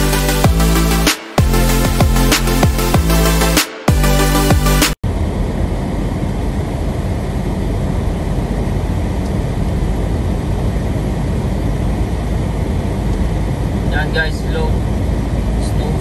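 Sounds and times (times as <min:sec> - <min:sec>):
strong wind against car: 0:05.0 - 0:16.0
tyres rumbling on snowy road: 0:05.0 - 0:16.0.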